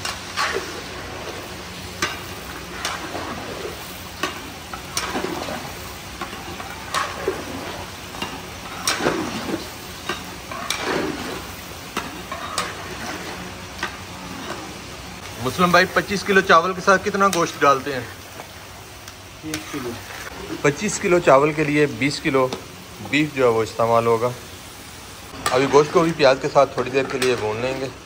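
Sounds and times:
meat sizzling in a pot: 0:00.0 - 0:28.0
spoon scraping pot: 0:02.1 - 0:14.8.

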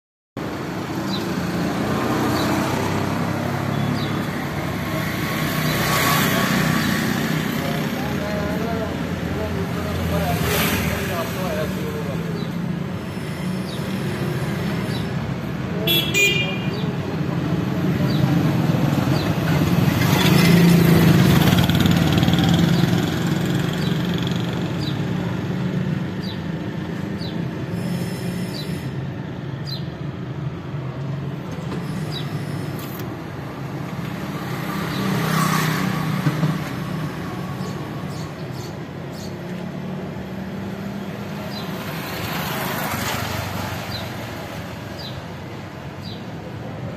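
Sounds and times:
road traffic passing: 0:00.4 - 0:46.9
car horn toot: 0:15.9 - 0:16.7.

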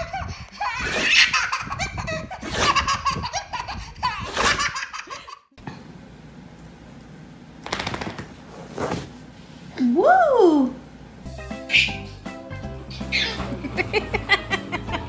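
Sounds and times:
baby laughing: 0:00.0 - 0:05.5, 0:11.6 - 0:12.2, 0:12.9 - 0:15.0
room noise: 0:05.6 - 0:11.2.

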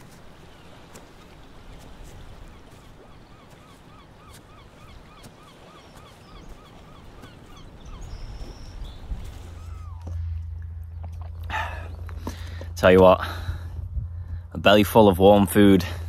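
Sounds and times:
bird calling in quick notes: 0:00.3 - 0:12.6
higher bird call: 0:02.6 - 0:10.4
low wind rumble: 0:04.1 - 0:16.0.

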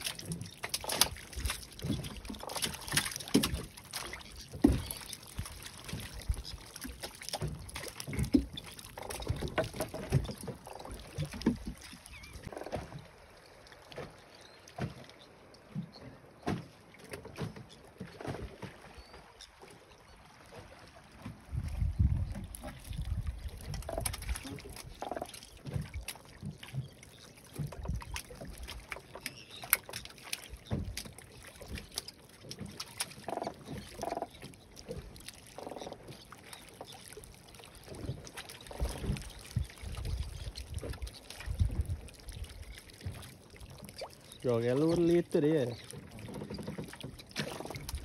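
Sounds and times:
water slapping boat hull: 0:00.0 - 0:48.0
wind gusts on microphone: 0:21.5 - 0:23.6.

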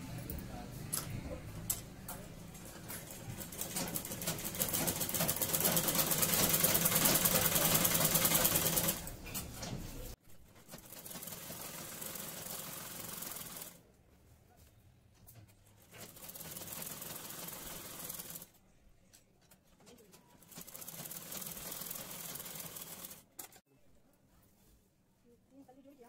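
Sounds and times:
sewing machine clatter: 0:02.5 - 0:13.8, 0:15.3 - 0:18.5, 0:19.5 - 0:23.6.

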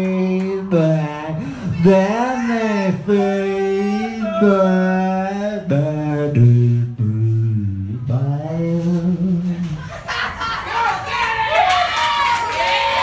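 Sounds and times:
man singing into a microphone: 0:00.0 - 0:10.0.

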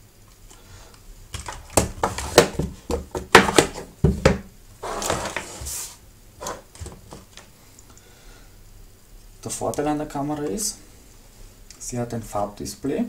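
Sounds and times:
rustling scrape across table: 0:04.8 - 0:06.7.

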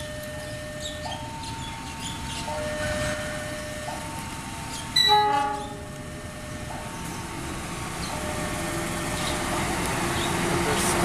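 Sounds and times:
low rumble of train: 0:00.0 - 0:11.0
locomotive horn blast: 0:05.0 - 0:06.2.

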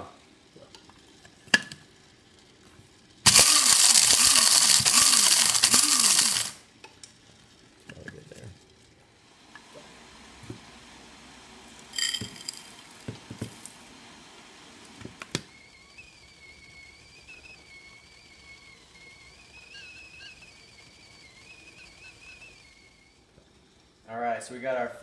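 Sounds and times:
kettle whistling: 0:03.2 - 0:06.7, 0:11.9 - 0:13.8, 0:14.9 - 0:23.5.

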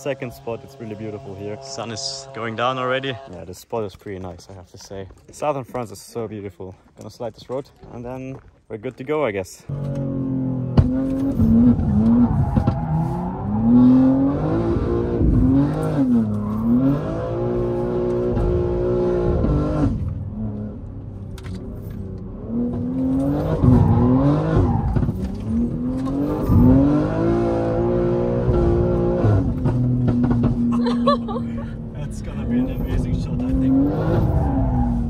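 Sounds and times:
car engine revving from inside cabin: 0:09.7 - 0:20.8, 0:22.1 - 0:30.8.

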